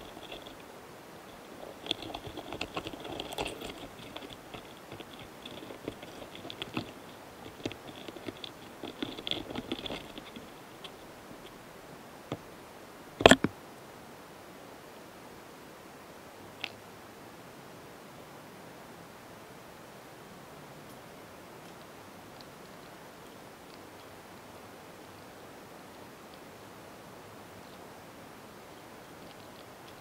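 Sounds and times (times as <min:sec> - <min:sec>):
beetles scratchy clicks: 0:00.0 - 0:11.6.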